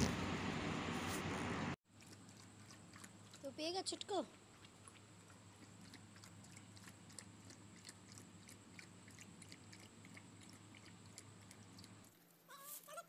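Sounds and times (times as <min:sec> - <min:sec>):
puppy lapping milk: 0:01.9 - 0:12.1.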